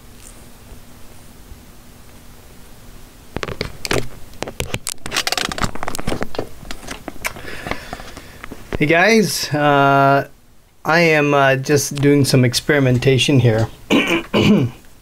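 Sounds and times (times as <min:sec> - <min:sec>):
handling clicks knocks and scrapes: 0:03.4 - 0:08.8
faint hiss: 0:07.2 - 0:15.0.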